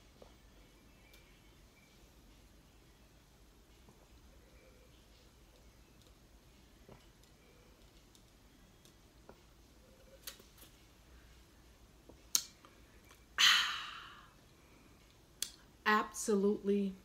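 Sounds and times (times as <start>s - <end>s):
person exhaling loudly: 13.4s - 14.3s.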